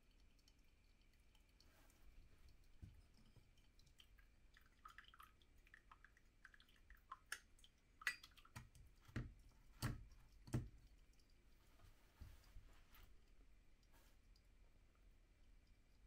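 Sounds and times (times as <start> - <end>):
coffee dripping into a mug: 0.0 - 11.6.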